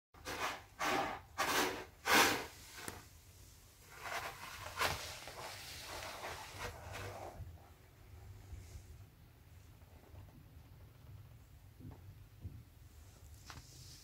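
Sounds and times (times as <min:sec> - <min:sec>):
cat scraping in litter: 0:00.2 - 0:03.1, 0:03.8 - 0:07.5.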